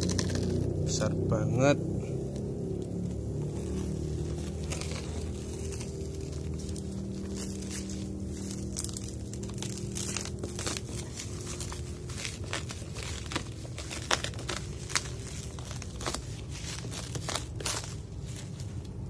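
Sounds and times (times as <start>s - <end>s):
bubble wrap crackling: 0.0s - 1.0s, 2.3s - 19.0s
bubble wrap snaps: 4.3s - 18.6s.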